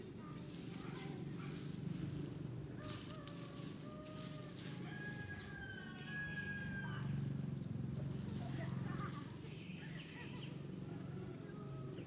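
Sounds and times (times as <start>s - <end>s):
rooster crowing: 2.8s - 7.2s.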